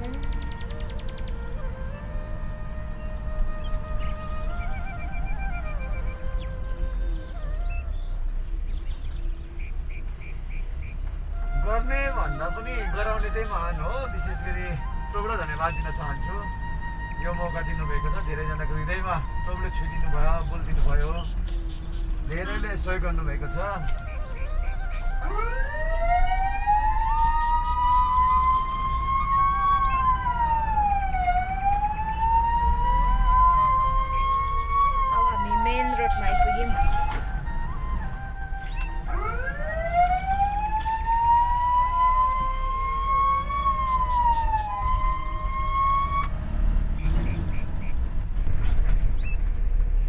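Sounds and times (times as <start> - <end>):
engine and road rumble: 0.0 - 50.0
electronic siren wailing: 23.6 - 46.4.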